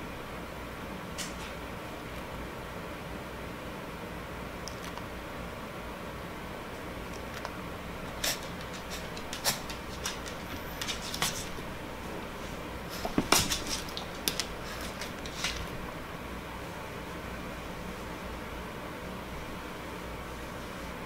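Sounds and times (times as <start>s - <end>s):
dog claws tapping on wooden floor: 8.3s - 11.8s, 13.0s - 15.8s.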